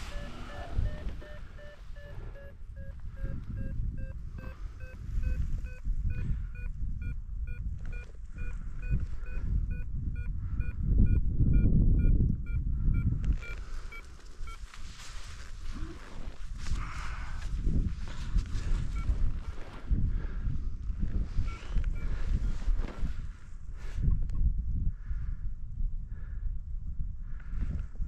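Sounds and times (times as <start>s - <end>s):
rapid short beeps: 0.0s - 14.6s.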